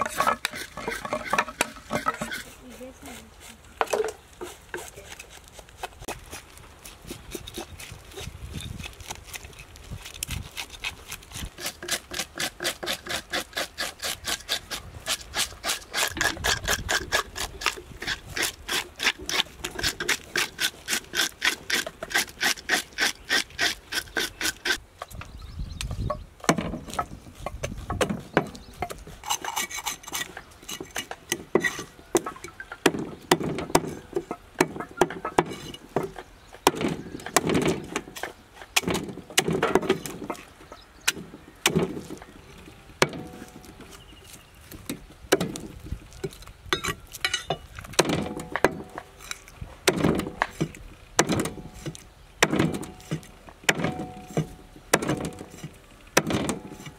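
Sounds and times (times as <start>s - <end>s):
knife scraping fish scales: 4.4s - 24.8s, 29.1s - 32.0s.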